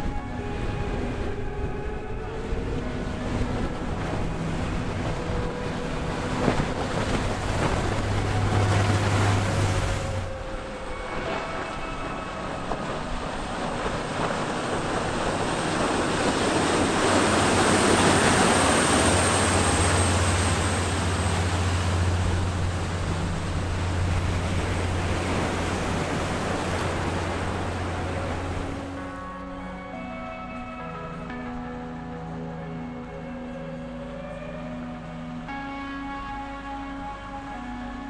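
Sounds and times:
diesel engines droning: 0.0 - 29.4
rushing boat wake: 0.0 - 38.0.

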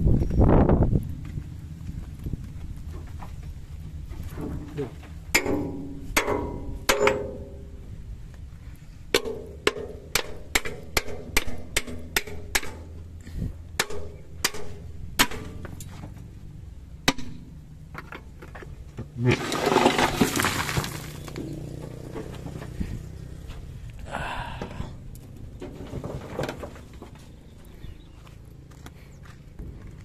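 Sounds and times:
low engine hum: 0.0 - 9.2, 12.7 - 19.3, 20.5 - 30.0
metal pipe clanging on steel: 5.3 - 7.6.

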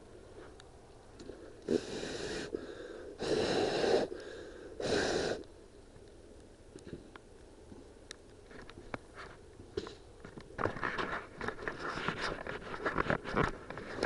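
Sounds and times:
person breathing hard: 1.4 - 5.5.

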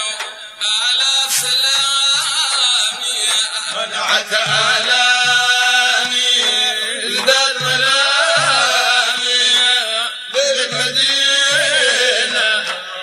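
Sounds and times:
men chanting: 0.0 - 13.0
low drum beats: 4.1 - 12.3.

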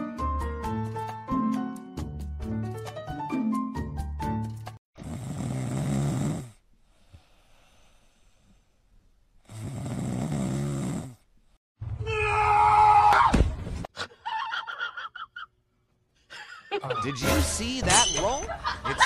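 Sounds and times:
cat snoring: 5.0 - 8.6, 9.4 - 11.3.

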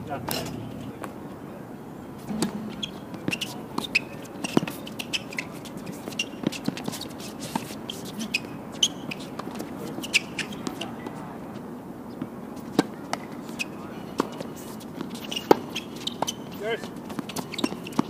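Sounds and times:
rackets hitting tennis ball: 0.1 - 1.2, 2.2 - 11.1, 12.2 - 18.0
shoes squeaking on court: 0.1 - 1.4, 2.1 - 18.0
ball bouncing: 2.3 - 4.8.

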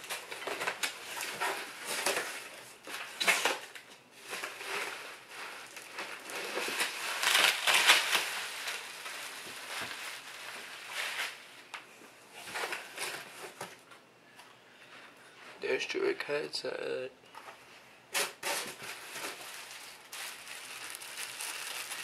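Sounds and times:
bubble wrap crinkling: 0.0 - 11.8, 18.2 - 22.0.

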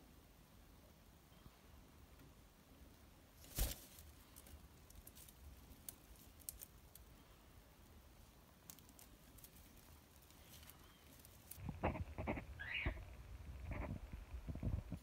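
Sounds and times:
dry hay rustling and ticking: 3.4 - 12.0.

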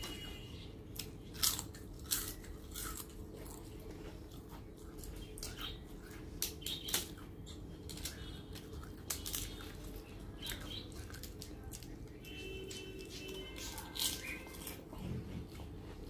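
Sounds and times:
crunching fried crispbread: 0.0 - 16.0.

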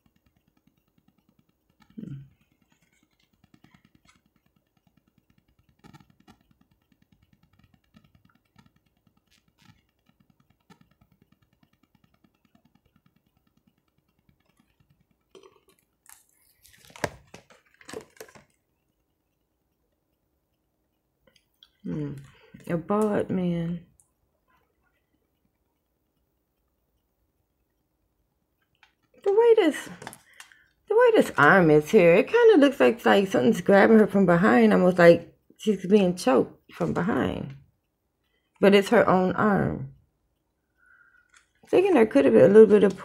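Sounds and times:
cards clicking and rustling: 0.0 - 18.6.

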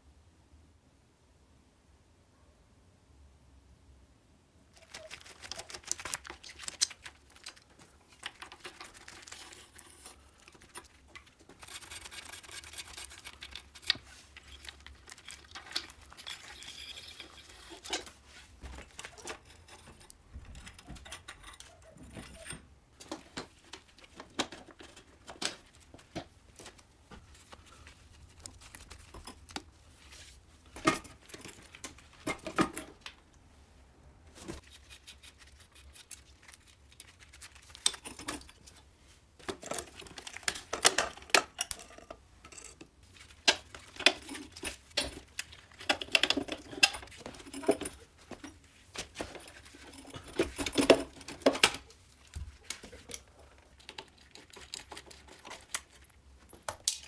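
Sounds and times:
hand tools clicking and clinking: 8.2 - 18.2, 18.8 - 22.7, 39.4 - 51.8.

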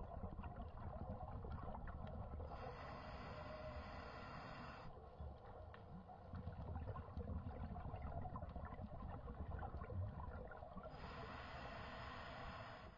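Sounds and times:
faint clicks and crackle: 4.1 - 10.8.

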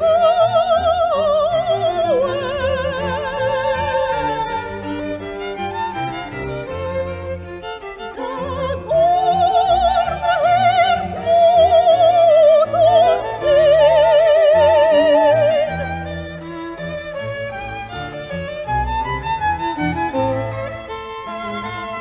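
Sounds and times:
soprano singing with vibrato: 0.0 - 4.8, 8.1 - 16.0
string orchestra playing: 0.0 - 22.0.

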